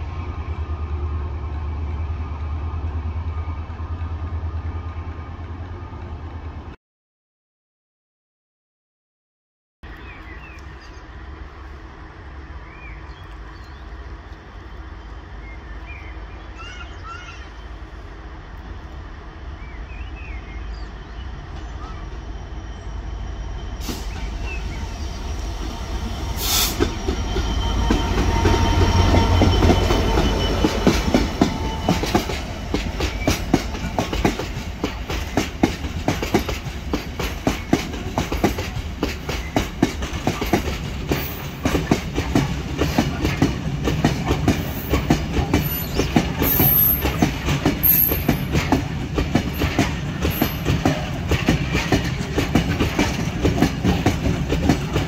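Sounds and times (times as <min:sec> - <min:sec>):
diesel train rumble: 0:00.0 - 0:06.8, 0:09.9 - 0:55.0
train wheels clicking over rail joints: 0:25.5 - 0:55.0.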